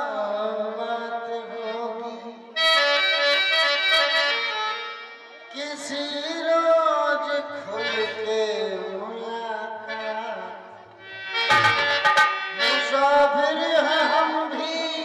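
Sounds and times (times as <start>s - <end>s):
man singing: 0.0s - 2.6s, 5.5s - 10.8s, 12.5s - 15.0s
harmonium chords: 0.0s - 6.5s, 7.1s - 15.0s.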